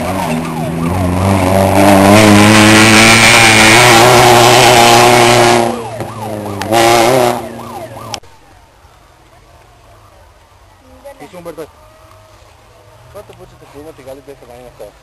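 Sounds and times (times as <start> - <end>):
rally car engine revving: 0.0 - 8.2
road noise: 0.0 - 15.0.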